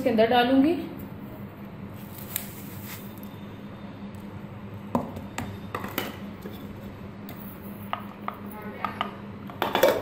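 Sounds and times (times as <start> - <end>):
kitchenware knocks and clinks: 7.9 - 10.0.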